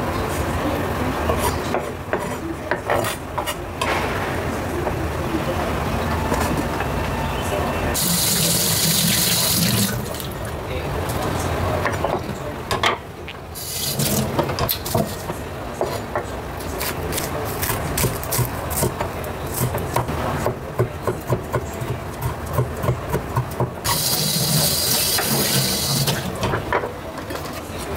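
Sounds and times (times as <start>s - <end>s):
tap water running: 8.0s - 10.4s, 23.9s - 26.3s.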